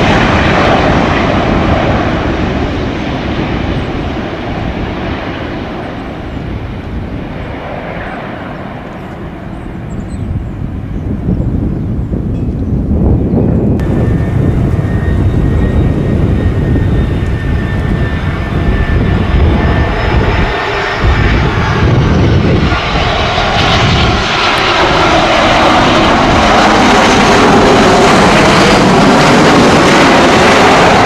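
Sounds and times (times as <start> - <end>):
jet engines whining on approach: 0.0 - 31.0
jet roar on touchdown: 13.7 - 31.0.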